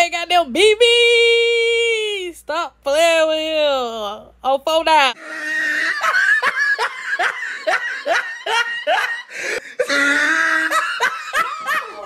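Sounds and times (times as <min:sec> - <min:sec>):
person laughing: 0:05.2 - 0:12.0.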